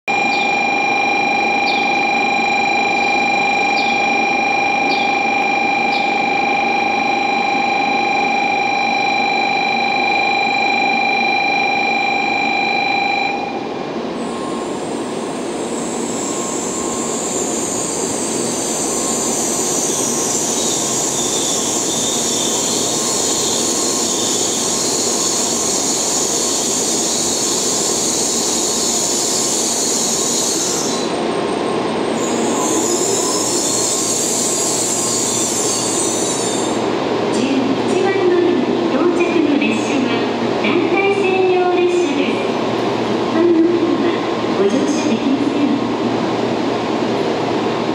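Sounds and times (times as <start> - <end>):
multi-pitched electronic tone: 0.1 - 13.7.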